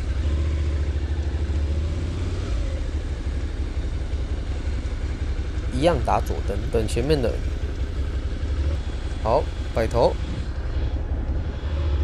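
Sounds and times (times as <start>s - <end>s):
motorcycle engine pulling away: 0.0s - 4.6s.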